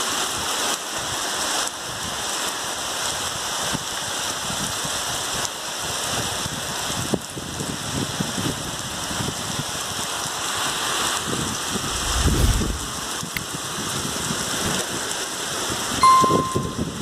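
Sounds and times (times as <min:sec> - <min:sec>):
heavy rain falling: 0:00.0 - 0:17.0
low rumble: 0:11.8 - 0:13.1.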